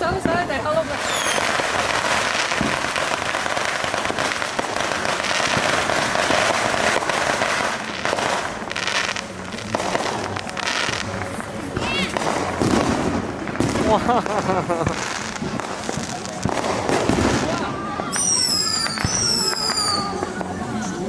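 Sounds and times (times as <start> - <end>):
fireworks crackling and popping: 0.0 - 21.0.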